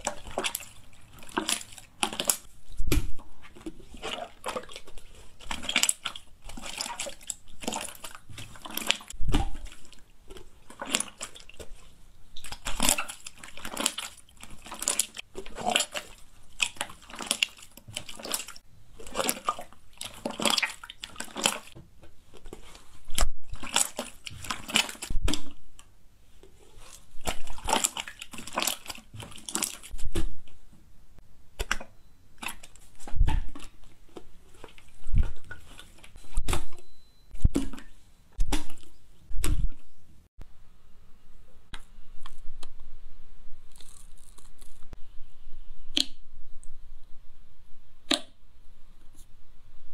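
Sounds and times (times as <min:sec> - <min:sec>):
slime squelching: 0:00.0 - 0:30.7, 0:31.5 - 0:40.0.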